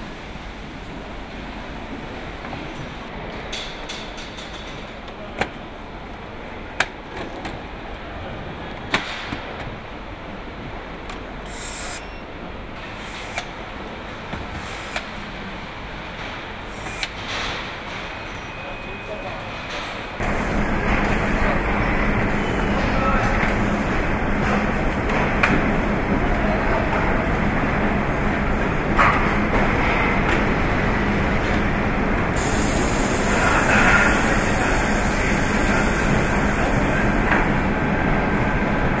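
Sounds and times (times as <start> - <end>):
machinery rumble and hum: 19.6 - 39.0
steady high hiss: 32.4 - 37.2.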